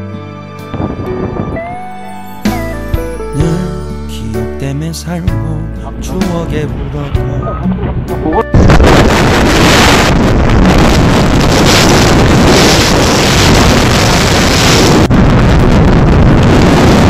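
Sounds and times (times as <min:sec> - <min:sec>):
wind rushing over microphone: 0:00.6 - 0:01.9, 0:06.4 - 0:17.0.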